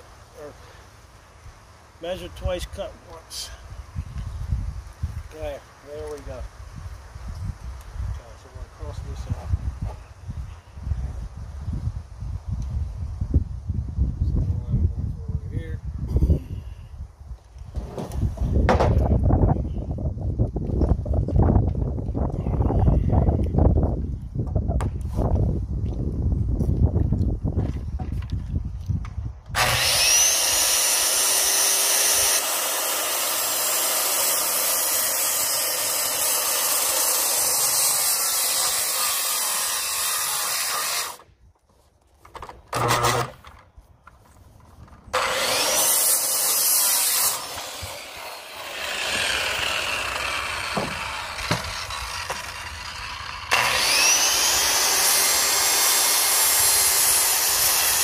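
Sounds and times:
power saw cutting wood: 0:29.5 - 0:41.3, 0:42.7 - 0:43.6, 0:45.1 - 0:58.0.

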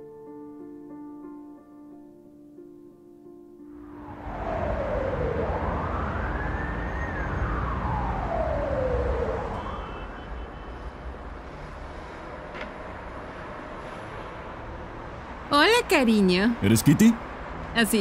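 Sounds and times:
emergency siren wailing: 0:03.8 - 0:11.1
traffic rumble: 0:03.9 - 0:18.0.

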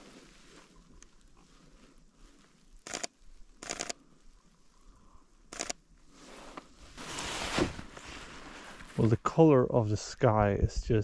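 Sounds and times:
rustle: 0:00.0 - 0:10.3
footsteps crunching in snow: 0:06.1 - 0:09.2.

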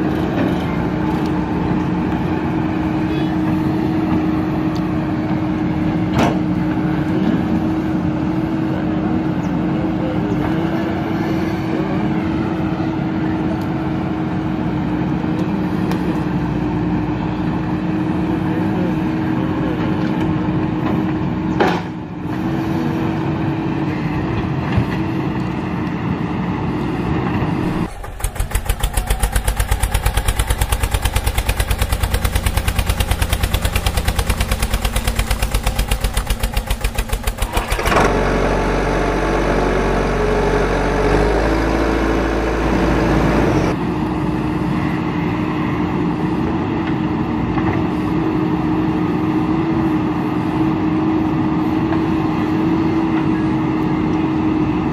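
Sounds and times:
heavy vehicle engine running: 0:00.0 - 0:54.9
fast pulsing engine chug: 0:27.6 - 0:39.0.

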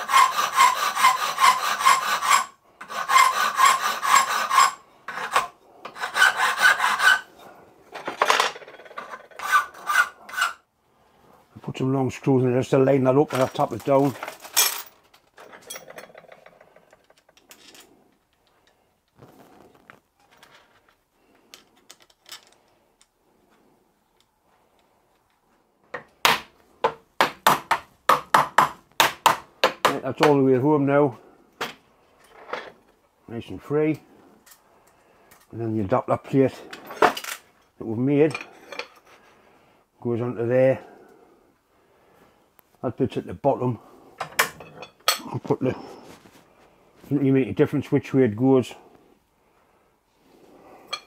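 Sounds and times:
hand file rasping on metal: 0:00.0 - 0:07.5, 0:09.1 - 0:10.6.

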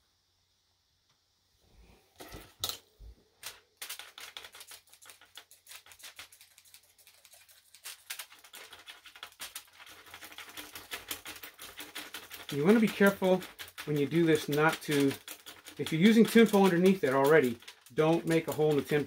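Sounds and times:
knife scraping crayon on foil: 0:03.9 - 0:19.0.

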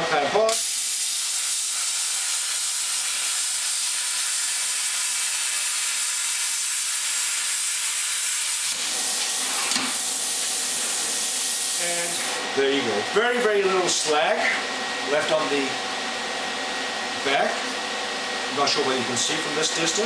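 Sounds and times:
plasma cutter arc hissing: 0:00.5 - 0:12.4.

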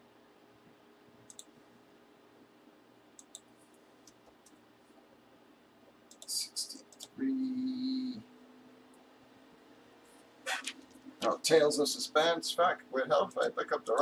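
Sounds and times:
mouse clicks: 0:01.2 - 0:01.5, 0:03.2 - 0:03.5, 0:06.1 - 0:07.2
keyboard typing: 0:01.3 - 0:01.5, 0:03.2 - 0:03.5
low steady tone: 0:06.2 - 0:09.0.

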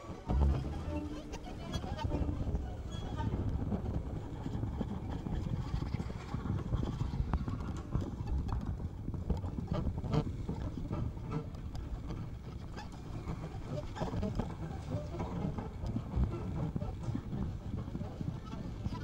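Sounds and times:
dense low rumbling: 0:00.0 - 0:19.0.

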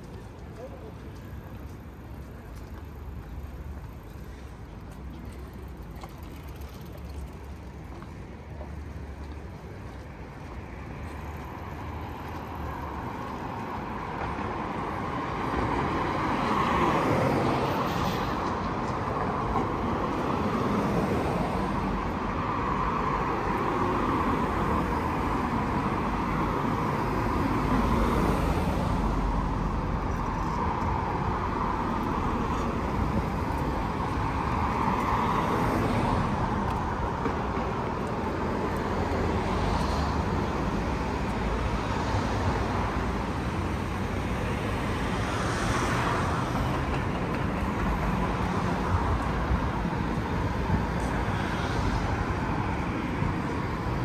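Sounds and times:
vehicles driving past: 0:00.0 - 0:54.0.

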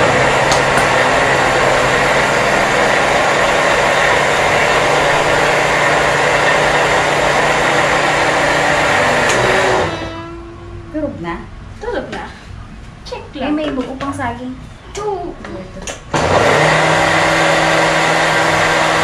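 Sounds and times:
blender motor running: 0:00.0 - 0:10.5, 0:16.1 - 0:19.0.

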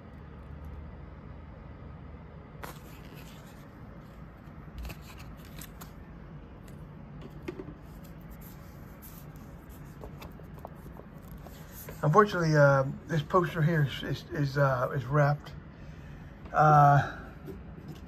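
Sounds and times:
paper cards rustling: 0:02.6 - 0:06.0, 0:07.7 - 0:12.3.

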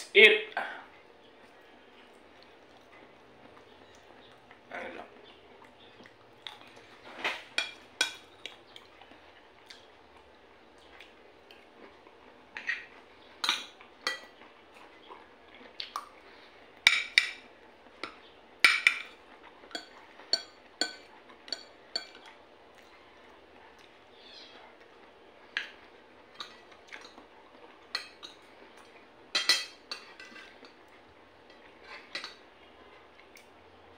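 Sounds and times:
cutlery clinking on a plate: 0:07.1 - 0:08.5, 0:12.6 - 0:14.3, 0:16.8 - 0:22.3, 0:27.9 - 0:28.4, 0:29.3 - 0:30.8, 0:31.5 - 0:32.4.

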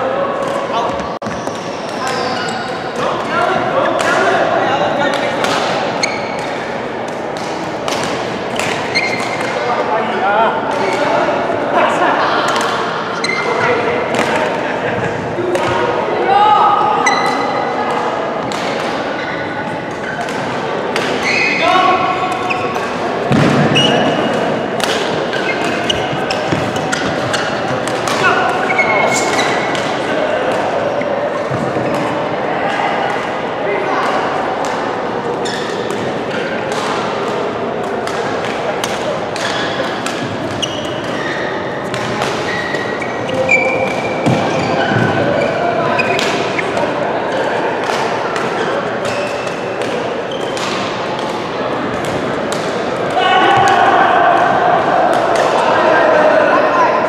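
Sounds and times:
large hall background noise: 0:00.0 - 0:57.0
shoes squeaking on floor: 0:00.9 - 0:02.9, 0:05.9 - 0:06.6, 0:08.6 - 0:09.6, 0:13.2 - 0:13.7, 0:17.0 - 0:17.5, 0:19.2 - 0:20.3, 0:21.2 - 0:22.9, 0:23.7 - 0:24.3, 0:25.2 - 0:29.8, 0:35.4 - 0:36.6, 0:40.4 - 0:46.9
rackets hitting shuttlecock: 0:05.1 - 0:09.8, 0:12.4 - 0:15.9, 0:17.1 - 0:19.3, 0:19.9 - 0:32.2, 0:34.0 - 0:53.8
racket striking shuttlecock: 0:06.4 - 0:09.6, 0:22.3 - 0:29.9.

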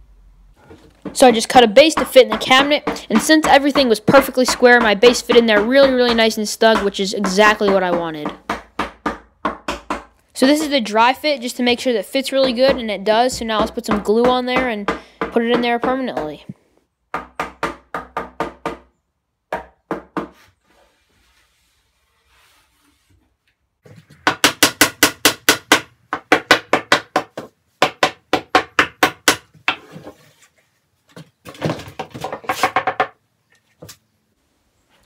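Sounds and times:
mallet striking wooden cabinet: 0:01.9 - 0:10.8, 0:12.4 - 0:16.4, 0:17.1 - 0:18.9, 0:24.2 - 0:29.5.

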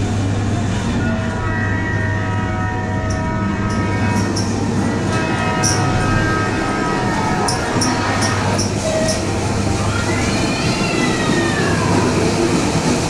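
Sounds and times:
ride car rumbling on track: 0:00.0 - 0:13.0
high held tones: 0:00.9 - 0:10.4.

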